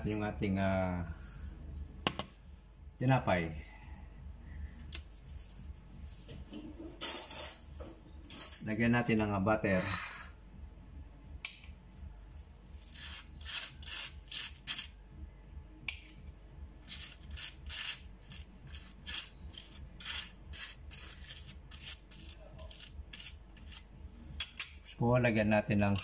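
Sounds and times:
knife scraping butter on bread: 12.8 - 14.9, 16.9 - 23.9.

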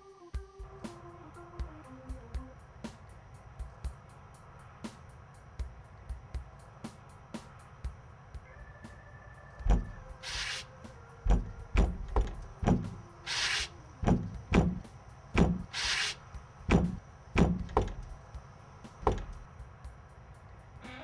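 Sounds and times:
knocking on a door: 9.6 - 10.0, 11.3 - 13.0, 14.0 - 15.8, 16.7 - 18.1, 19.0 - 19.4
short hissing bursts: 10.1 - 10.8, 13.2 - 13.8, 15.5 - 16.4.

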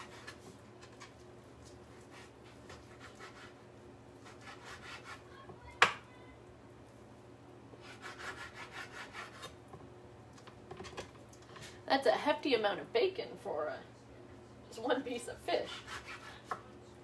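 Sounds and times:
knife sawing on cutting board: 0.0 - 0.4, 2.0 - 3.6, 4.2 - 5.3, 7.8 - 9.6, 15.6 - 16.6.

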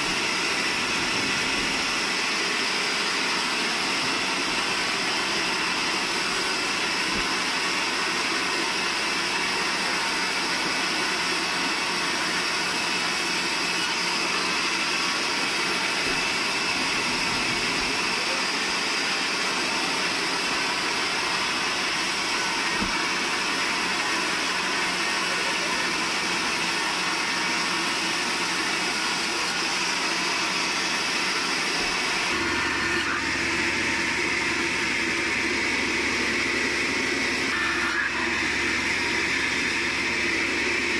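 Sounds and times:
band saw cutting log: 0.0 - 40.9.

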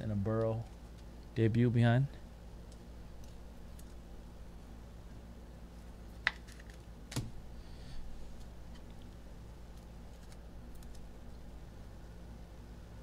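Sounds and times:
cards rustling: 9.7 - 11.1.

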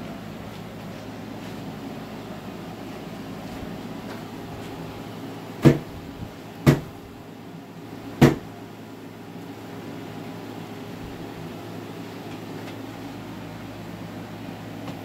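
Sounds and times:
steady low hum: 0.0 - 15.0
wooden hive frames knocking: 6.6 - 6.9, 8.2 - 8.5.

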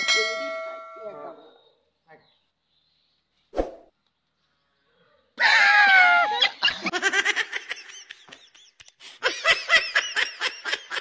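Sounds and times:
rhythmic laughter: 6.5 - 11.0.

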